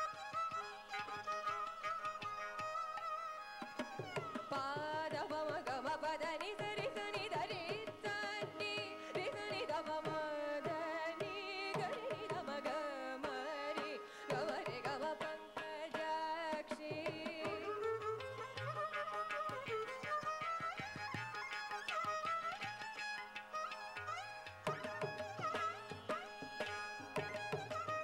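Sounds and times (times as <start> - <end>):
violin: 0.0 - 28.0
mridangam drum strokes: 3.5 - 28.0
woman singing: 4.5 - 18.6.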